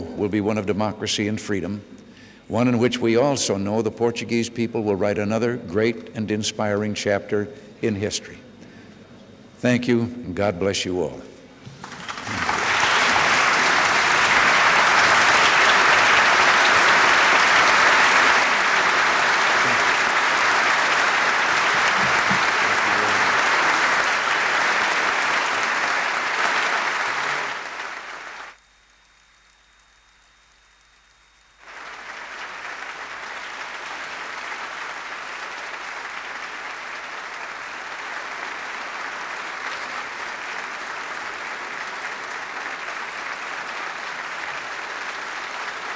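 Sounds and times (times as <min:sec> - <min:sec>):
large audience applauding: 0:11.7 - 0:28.6, 0:31.6 - 0:45.9.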